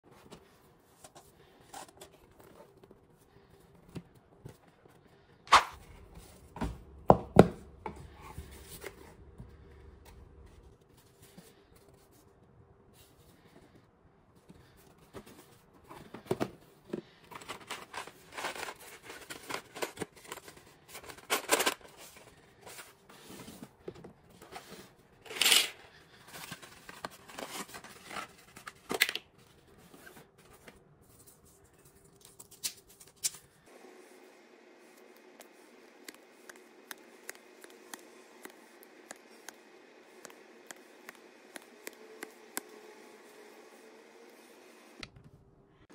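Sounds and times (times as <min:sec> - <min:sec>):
paper ripping: 0:05.5 - 0:05.8
paper and cardboard rustling: 0:14.4 - 0:33.6.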